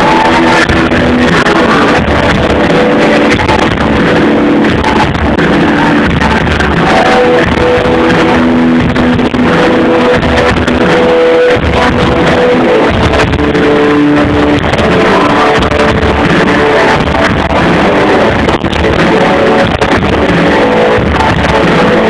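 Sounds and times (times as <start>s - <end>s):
drums: 0.0s - 22.0s
electric guitar: 0.0s - 22.0s.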